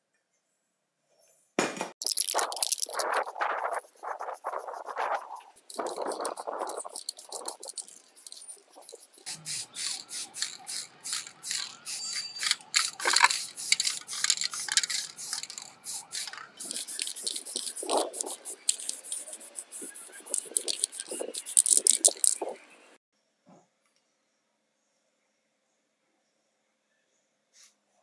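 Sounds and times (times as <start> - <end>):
aerosol spray can hissing: 2.0 - 22.5.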